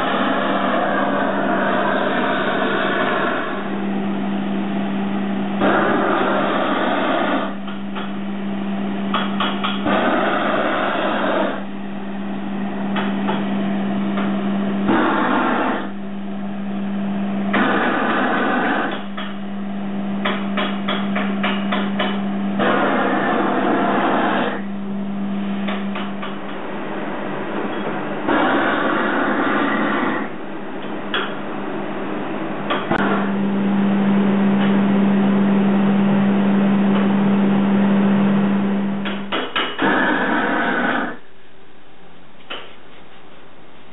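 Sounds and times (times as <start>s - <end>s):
blowtorch flame hissing: 0.0s - 3.7s, 5.6s - 7.5s, 9.8s - 11.6s, 14.9s - 15.9s, 28.3s - 30.3s
steady low hum: 0.0s - 43.9s.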